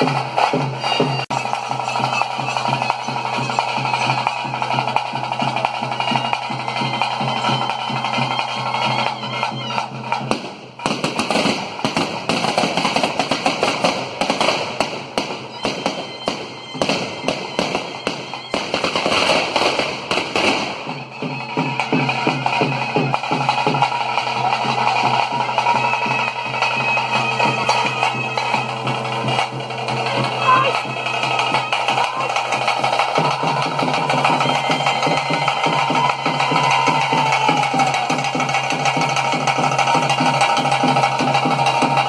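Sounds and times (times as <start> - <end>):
ritual drumming: 0.0 - 42.0
firework fountains crackling: 9.9 - 42.0.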